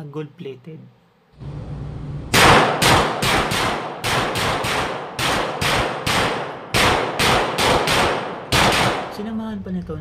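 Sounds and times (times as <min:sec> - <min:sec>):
rapid gunshots echoing indoors: 0:02.3 - 0:09.3.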